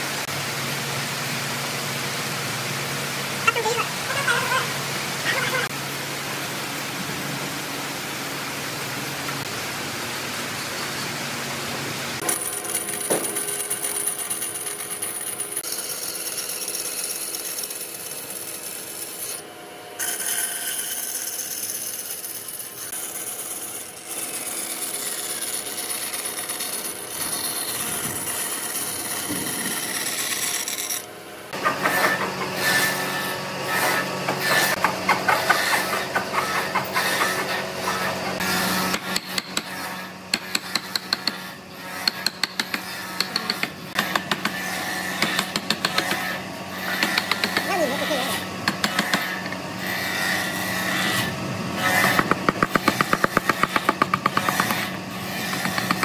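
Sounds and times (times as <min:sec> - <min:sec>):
bandsaw cutting wood: 0:12.2 - 0:56.0.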